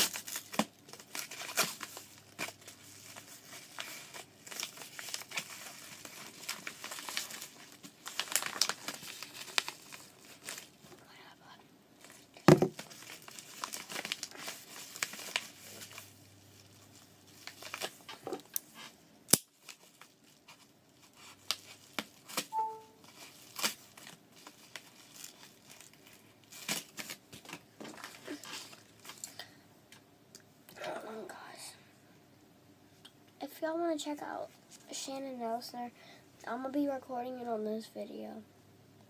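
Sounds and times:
packaging crinkling and tearing: 0.0s - 10.8s, 12.0s - 18.7s, 19.3s - 29.4s
loud knock: 12.5s - 12.8s.

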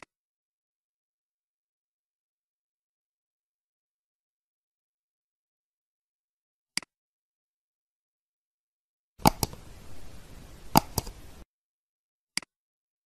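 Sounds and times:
computer mouse and keyboard clicks: 9.2s - 11.4s
faint hiss: 9.2s - 11.4s.

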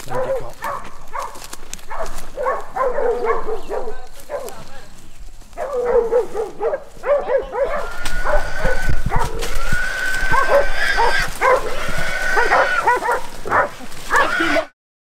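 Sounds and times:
dogs barking: 0.0s - 4.7s, 5.5s - 14.7s
hog squealing: 7.4s - 14.7s.

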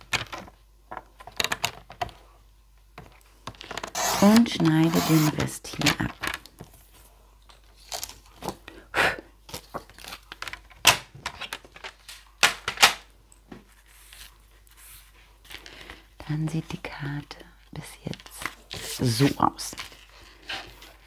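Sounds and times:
card rustling and scraping: 3.6s - 6.0s, 13.7s - 15.7s
paper trimmer blade cutting card: 3.8s - 5.5s.

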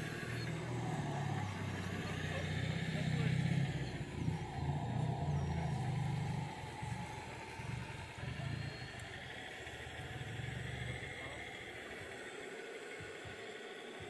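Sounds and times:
model vehicle engine drone: 0.0s - 14.0s.

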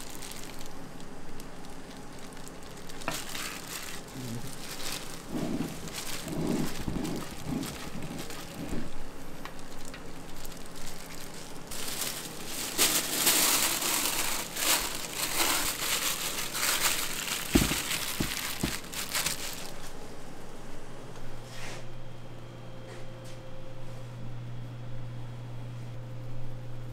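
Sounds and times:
plastic sheet crinkling: 0.0s - 20.0s
spatula scraping dough: 5.2s - 8.9s.

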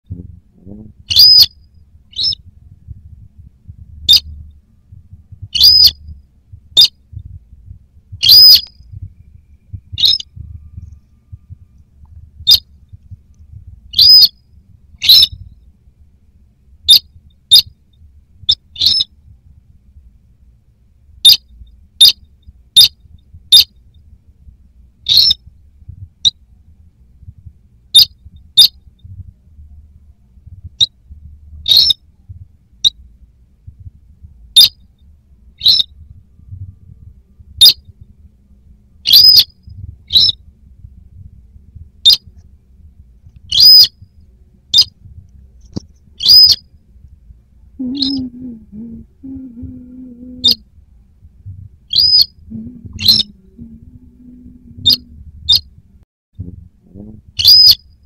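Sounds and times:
bird calling high-pitched notes: 1.1s - 2.4s, 4.0s - 4.5s, 5.5s - 6.1s, 8.2s - 11.8s, 12.4s - 12.7s, 13.9s - 14.4s, 15.0s - 15.4s, 18.5s - 19.1s, 25.1s - 25.4s, 31.6s - 32.0s, 35.6s - 36.4s, 39.0s - 40.4s, 43.5s - 43.9s, 46.2s - 46.6s, 47.8s - 48.5s, 51.9s - 55.6s, 57.4s - 57.8s.

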